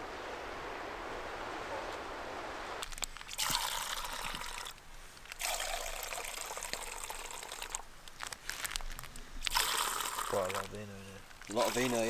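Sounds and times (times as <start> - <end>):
wine pouring into metal mugs: 3.3 - 7.8, 9.4 - 10.7, 11.4 - 12.0.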